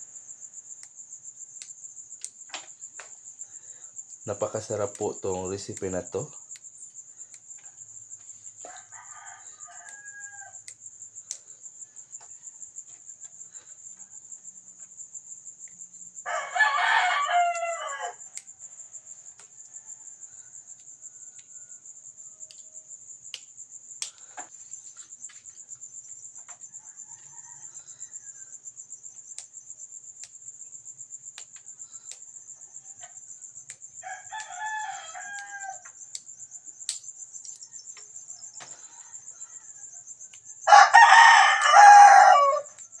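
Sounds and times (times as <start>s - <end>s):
crickets trilling: 0.0s - 43.0s
rooster crowing: 8.6s - 10.7s, 16.2s - 22.6s, 26.6s - 28.6s, 34.0s - 36.8s, 37.4s - 43.0s.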